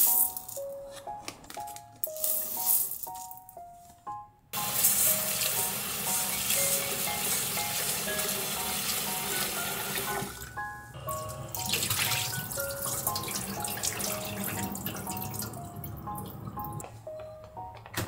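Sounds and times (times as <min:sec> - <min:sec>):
soft piano music: 0:00.0 - 0:18.0
rice being swirled and rinsed: 0:04.6 - 0:09.6
tap water running into a pot: 0:04.6 - 0:10.5, 0:11.5 - 0:15.5.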